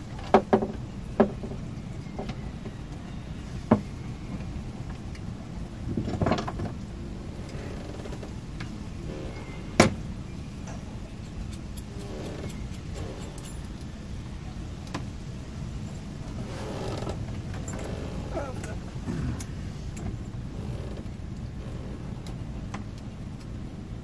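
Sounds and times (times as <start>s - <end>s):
steady low hum: 6.8s - 24.0s.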